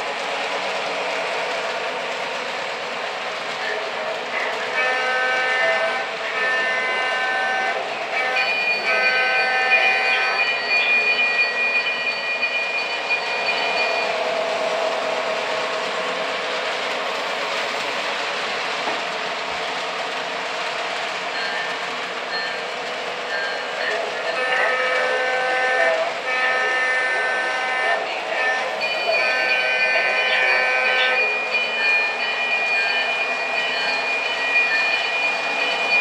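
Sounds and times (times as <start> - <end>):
train wheels rattling on track: 0.0 - 36.0
toy train horn blasts: 4.7 - 11.4, 24.2 - 31.5.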